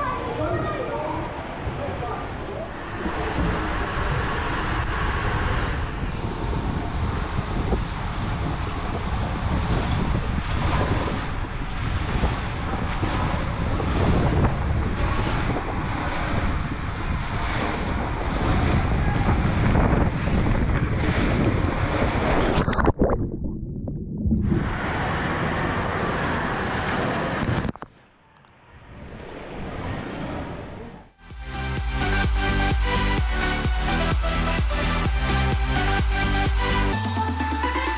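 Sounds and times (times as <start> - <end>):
water rushing in slide tube: 0.0 - 23.2, 24.4 - 27.8.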